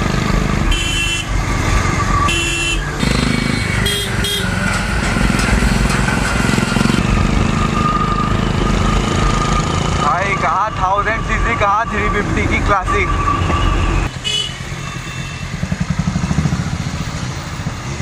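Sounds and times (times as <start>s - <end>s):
vehicle horns honking: 0.7s - 1.4s, 2.2s - 4.8s, 10.6s - 15.6s
motorcycle engine running: 15.3s - 18.0s.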